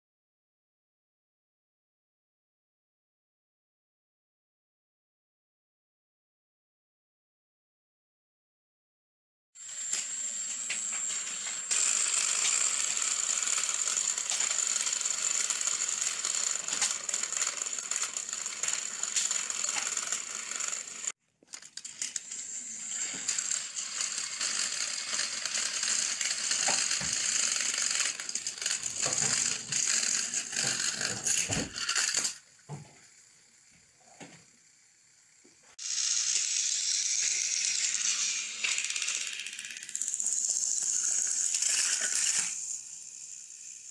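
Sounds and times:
gears and wheels clicking rattle: 9.6 - 33.2, 34.2 - 43.9
toy train motors whining: 9.6 - 43.9.

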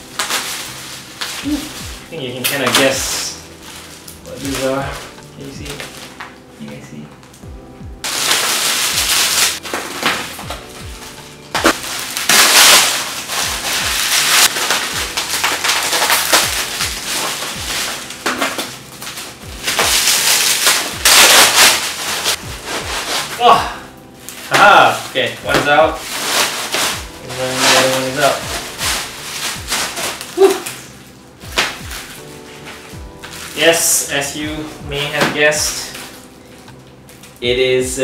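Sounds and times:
plastic packaging crinkling: 0.0 - 7.4, 8.0 - 37.4
bubble wrap crackling and tearing: 0.0 - 37.5
background music with steady beat: 0.0 - 38.0
person saying woo: 30.4 - 30.7.

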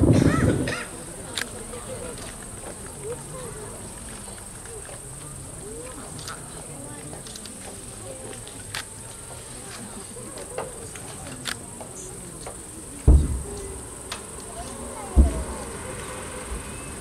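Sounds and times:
crickets chirping: 0.0 - 17.0
distant firework booms: 13.0 - 17.0.

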